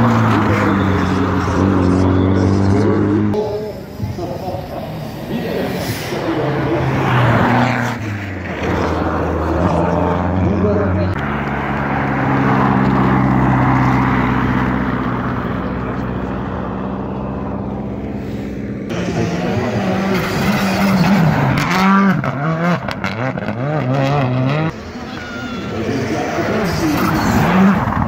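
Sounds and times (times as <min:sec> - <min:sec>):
car engine revving hard: 0:00.0 - 0:03.4, 0:18.3 - 0:24.8, 0:25.7 - 0:28.0
rally car passing: 0:00.0 - 0:28.0.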